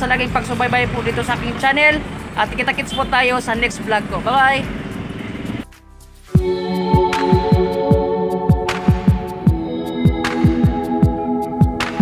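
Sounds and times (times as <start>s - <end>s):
held synth chords: 6.4s - 12.0s.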